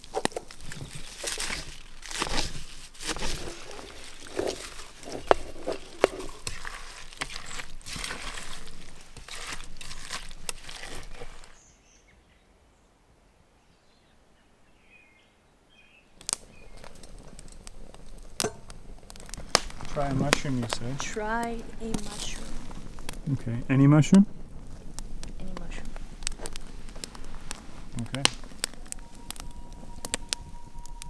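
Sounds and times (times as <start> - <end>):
hand tossing wet leaves in pot: 0.0 - 11.6
campfire crackling: 0.0 - 11.7, 16.1 - 31.0.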